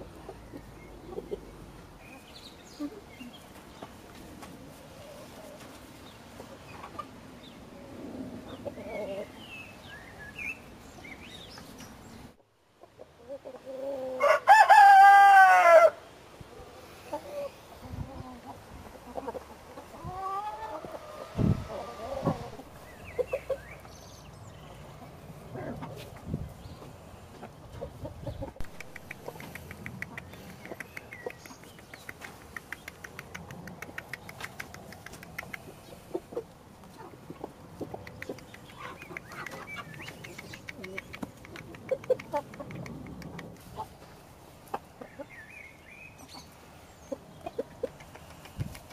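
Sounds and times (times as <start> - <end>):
hens clucking: 0.0 - 7.2, 17.0 - 24.0, 25.0 - 45.4, 46.2 - 48.9
rooster crowing: 14.2 - 16.0
soft clucks: 27.4 - 44.0, 47.1 - 48.9.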